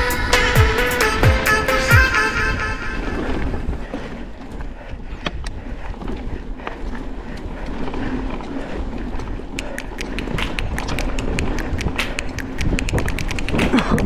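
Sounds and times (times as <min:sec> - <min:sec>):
bike riding rumble: 0:00.0 - 0:14.0
bike clicks and rattles: 0:03.0 - 0:14.0.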